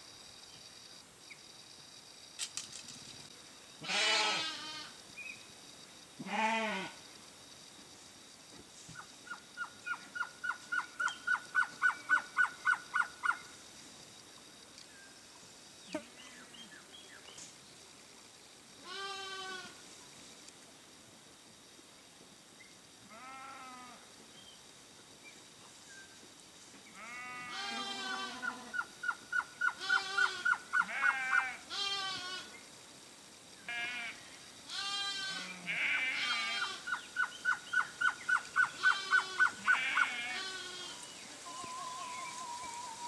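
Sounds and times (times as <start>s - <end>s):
bird singing evenly spaced notes: 9.1s - 13.6s, 36.6s - 43.0s.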